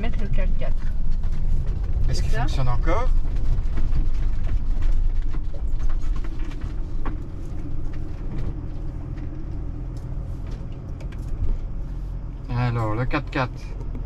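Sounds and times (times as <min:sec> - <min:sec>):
engine and road rumble: 0:00.0 - 0:14.0
small knocks and rattles: 0:03.0 - 0:11.7.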